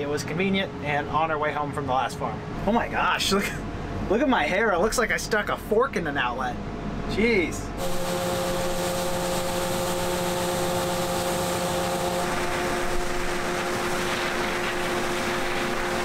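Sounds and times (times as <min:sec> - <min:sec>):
constant humming tones: 0:00.0 - 0:16.0
machinery engine drone: 0:06.5 - 0:16.0.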